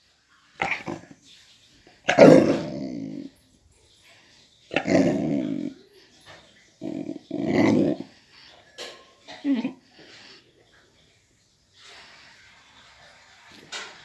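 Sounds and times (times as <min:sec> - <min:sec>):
puppy growling: 0:00.6 - 0:01.2, 0:02.1 - 0:03.4, 0:04.7 - 0:05.9, 0:06.8 - 0:08.2.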